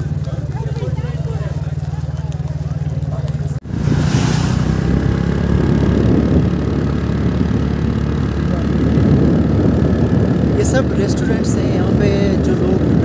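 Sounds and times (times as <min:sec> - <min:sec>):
low rumble of engines: 0:00.0 - 0:13.0
car driving past: 0:03.6 - 0:06.2.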